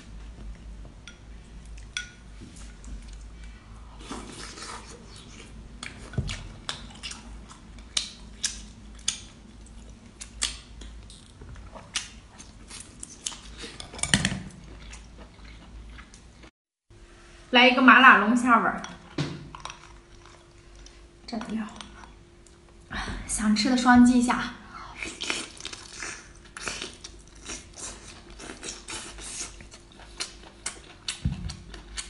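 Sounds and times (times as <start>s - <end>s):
wet chewing: 2.8s - 16.5s, 25.0s - 32.0s.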